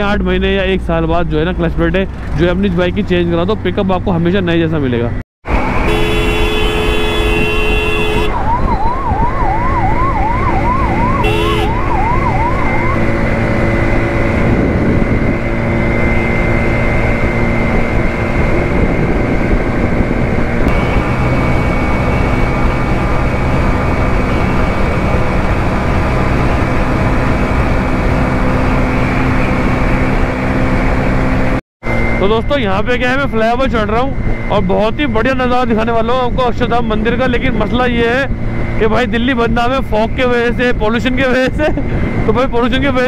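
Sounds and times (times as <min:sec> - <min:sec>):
motorcycle engine humming: 0:00.0 - 0:43.0
road traffic: 0:00.0 - 0:43.0
vehicle horn: 0:05.7 - 0:08.4, 0:11.2 - 0:11.8, 0:20.6 - 0:22.4
emergency siren yelping: 0:08.1 - 0:19.1.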